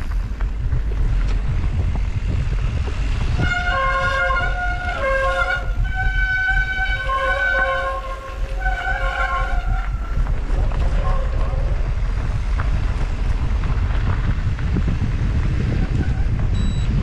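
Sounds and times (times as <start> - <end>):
tyre rumble: 0.0 - 4.8
wind: 0.0 - 17.0.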